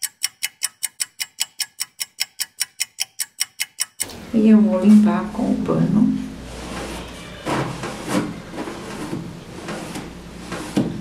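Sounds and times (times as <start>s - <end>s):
cloth rubbing on wood: 6.4s - 11.0s.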